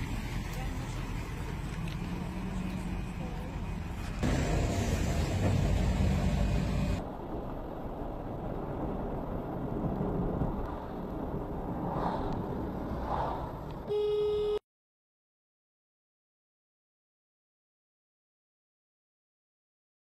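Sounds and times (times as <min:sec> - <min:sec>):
car interior road noise: 0:00.0 - 0:14.6
short horn-like tone: 0:13.9 - 0:14.6.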